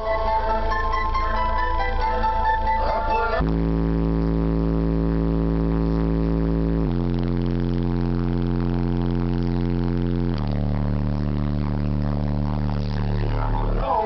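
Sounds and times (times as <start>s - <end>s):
loud sustained subwoofer bass notes: 0.0s - 14.0s.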